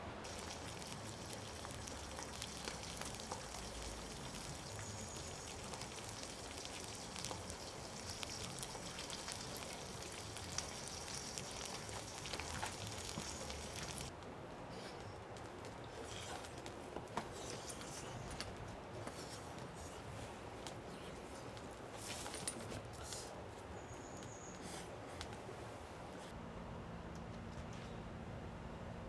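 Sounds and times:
barbecue sizzling and crackling: 0.2s - 14.1s.

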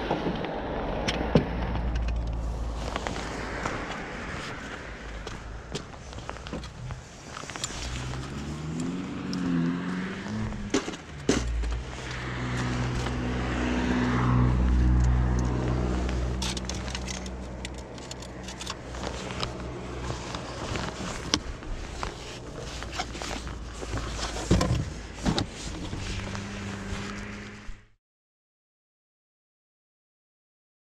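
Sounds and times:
car engine humming: 0.0s - 27.9s
gear knocking and rattling: 15.3s - 27.1s.

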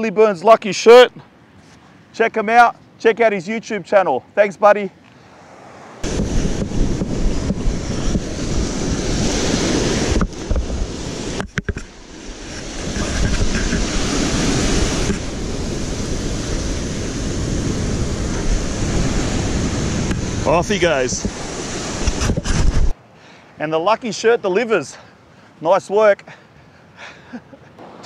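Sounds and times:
surf washing up sand: 5.4s - 23.0s, 27.8s - 28.0s
wind buffeting microphone: 6.0s - 23.0s.

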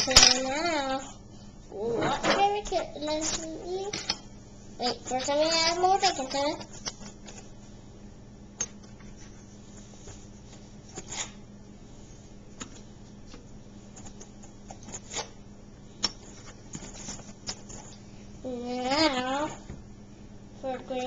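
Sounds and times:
faint steady hum: 0.0s - 21.0s.

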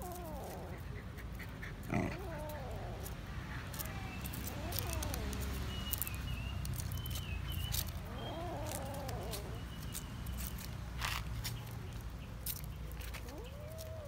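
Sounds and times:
young animal whining cry: 0.0s - 1.1s, 1.8s - 3.2s, 4.3s - 6.0s, 7.6s - 10.0s.

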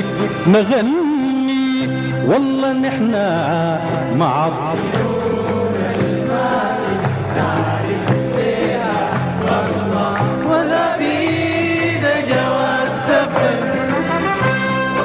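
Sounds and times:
live band playing: 0.0s - 15.0s
voices singing together: 4.0s - 15.0s.

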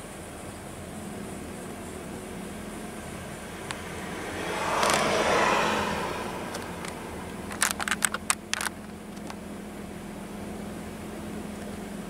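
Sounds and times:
car interior road drone: 0.0s - 12.0s
quick sharp clicks: 6.5s - 9.4s.

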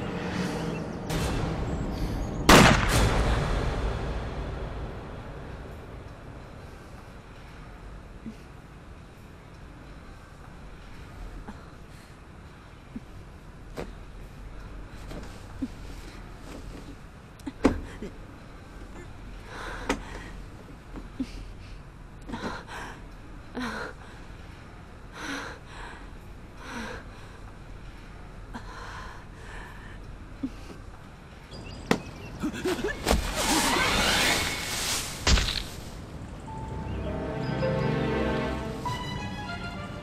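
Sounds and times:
rustling through grass: 32.7s - 36.2s.

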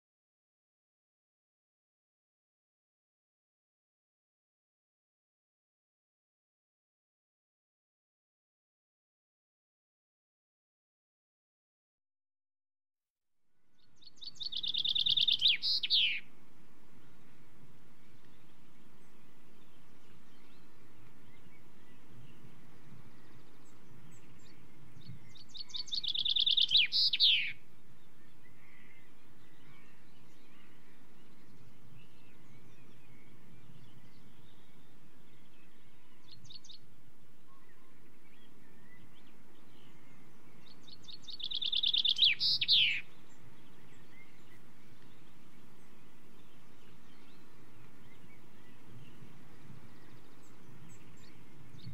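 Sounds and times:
low background noise: 13.5s - 51.9s
chaffinch singing: 13.7s - 51.9s.

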